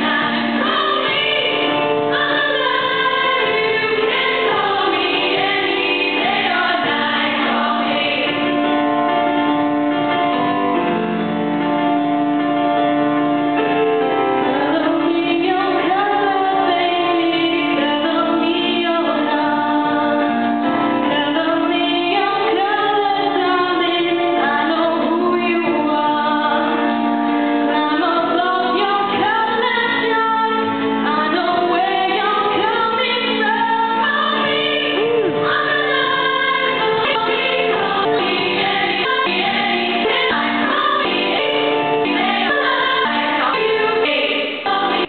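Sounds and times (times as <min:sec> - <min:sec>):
women's choir singing: 0:00.0 - 0:09.0, 0:14.5 - 0:26.8, 0:27.7 - 0:45.0
woman singing into microphone: 0:14.5 - 0:20.2, 0:21.1 - 0:26.8, 0:27.7 - 0:45.0.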